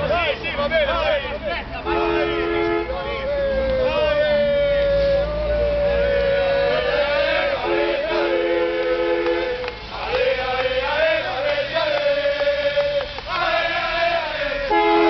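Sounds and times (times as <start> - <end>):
crowd chanting and singing: 0.0 - 15.0
long horn blast: 1.8 - 9.9, 14.4 - 15.0
two-note horn: 7.6 - 9.8.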